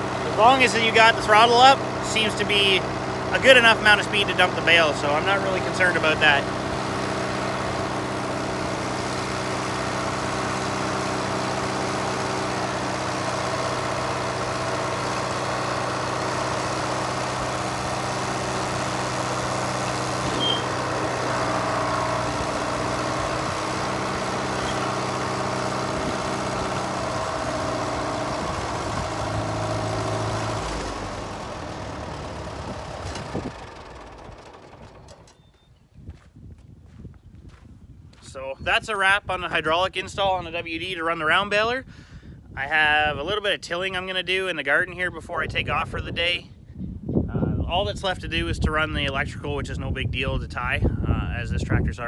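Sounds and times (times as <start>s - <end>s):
tractor engine running: 0.0s - 37.6s, 47.4s - 51.1s.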